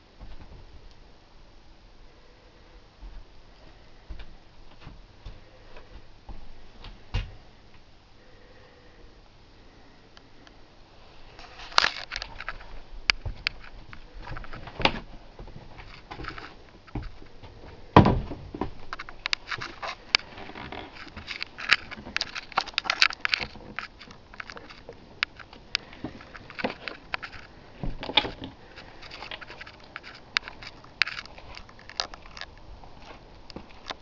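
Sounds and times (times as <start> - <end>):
handling clicks and crackles: 11.4 - 17.6, 18.6 - 34.0.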